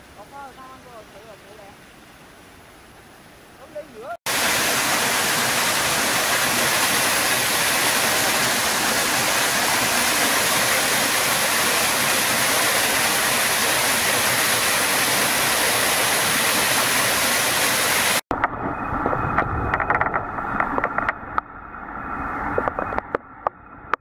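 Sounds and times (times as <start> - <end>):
water rushing over rocks: 3.8 - 21.4.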